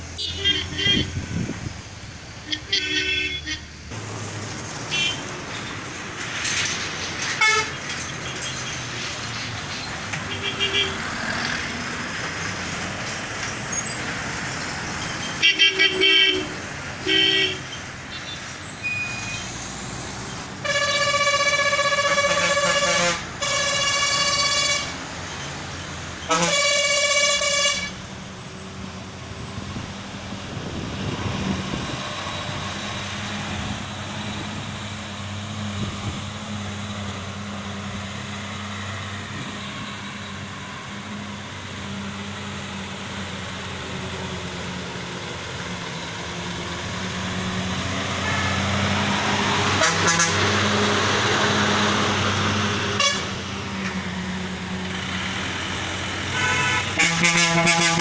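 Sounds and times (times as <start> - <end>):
diesel lorry engine: 0.0 - 58.0
lorry horn blasts: 20.6 - 25.0, 26.3 - 28.0, 49.7 - 50.6, 53.0 - 53.3, 56.3 - 58.0.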